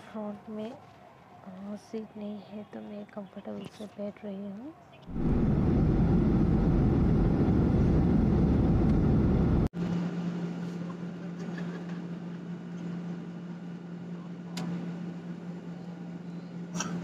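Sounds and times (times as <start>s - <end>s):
quiet steady hum: 1.5s - 9.7s
airliner cabin engine roar: 5.1s - 17.0s.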